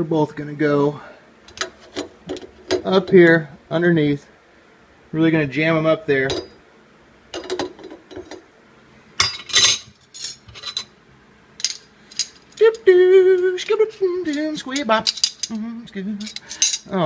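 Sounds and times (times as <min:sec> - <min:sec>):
man singing held wavering notes: 0:12.6 - 0:17.0.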